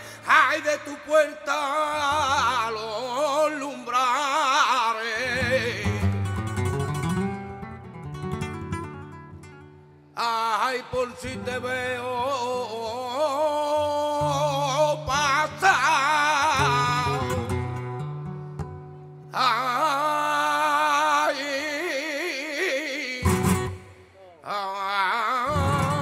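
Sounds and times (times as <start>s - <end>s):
man singing melismas: 0.0s - 6.2s, 10.2s - 17.5s, 19.3s - 26.0s
flamenco guitar plucking: 5.2s - 10.2s, 13.7s - 19.8s, 23.2s - 24.2s, 25.5s - 26.0s.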